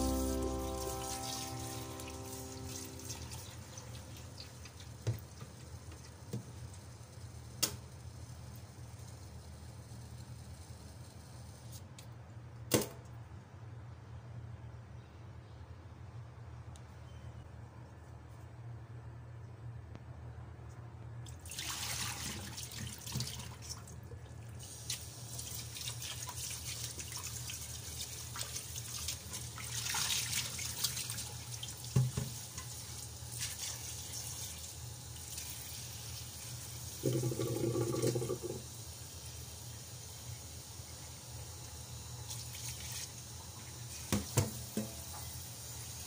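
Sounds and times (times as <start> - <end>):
brief low hum: 0.0 - 4.1
tap water splashing into pot: 21.4 - 23.9, 31.8 - 32.8, 44.0 - 45.3.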